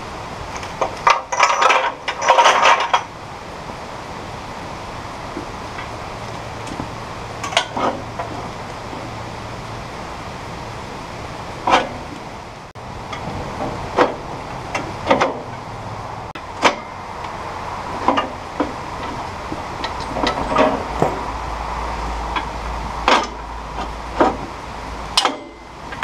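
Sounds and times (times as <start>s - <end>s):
steady background hum: 0.0s - 26.0s
metal clinks and knocks: 0.6s - 3.1s, 18.0s - 21.3s.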